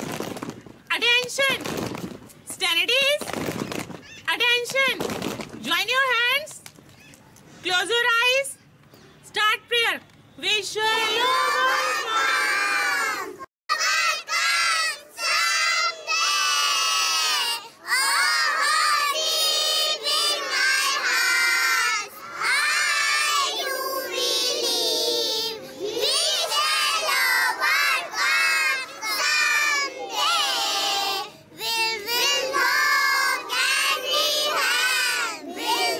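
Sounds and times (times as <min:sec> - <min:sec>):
children singing in unison: 0:13.7 - 0:35.9.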